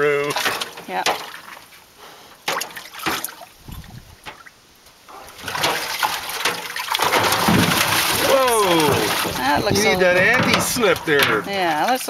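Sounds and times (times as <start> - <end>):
water splashing in bathtub: 0.0 - 12.0
sharp knocks: 2.4 - 4.5, 5.1 - 11.7.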